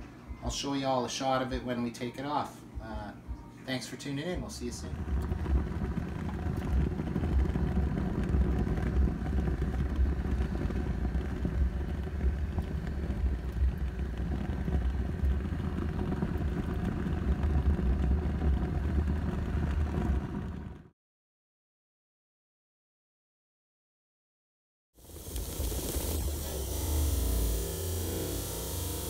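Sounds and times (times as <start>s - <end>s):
gas grill burners rumbling: 0.0s - 20.9s, 25.0s - 29.0s
gas burner hiss: 25.0s - 29.0s.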